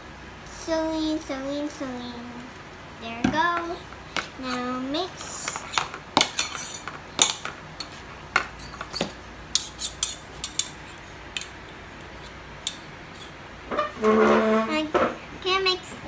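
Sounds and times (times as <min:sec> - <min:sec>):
metal spoons clinking against bowl: 0:05.6 - 0:11.6, 0:12.2 - 0:13.3.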